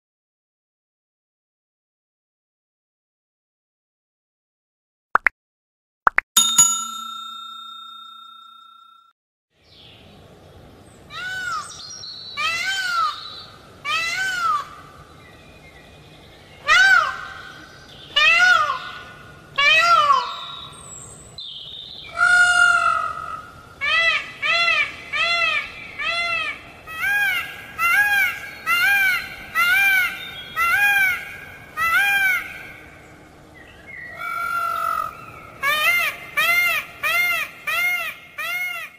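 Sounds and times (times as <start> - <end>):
bell ding: 6.4 - 9.1
peacock calling: 22.1 - 33.0, 34.1 - 38.9.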